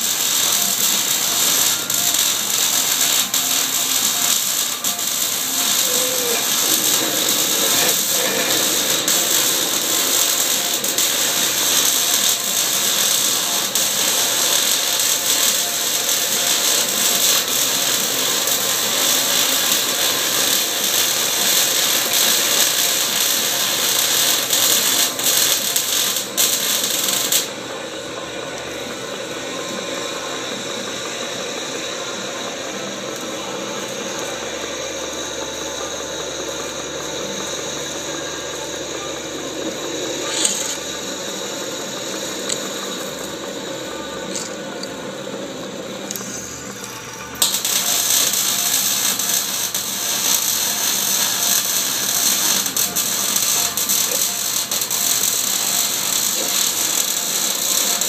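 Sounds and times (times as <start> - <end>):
drill cutting steel: 0.0 - 27.6, 46.1 - 58.0
lathe running: 0.0 - 58.0.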